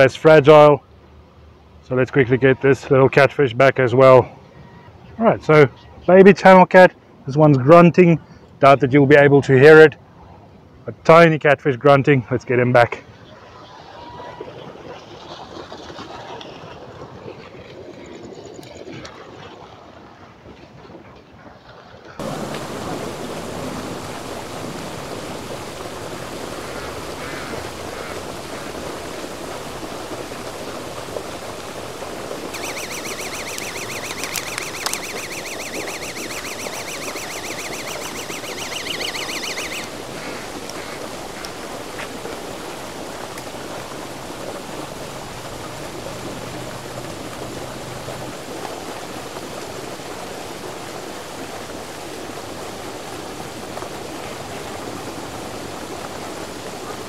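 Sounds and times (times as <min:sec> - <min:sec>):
outdoor night noise: 0:13.0 - 0:57.0
high pulsing trill: 0:32.6 - 0:39.9.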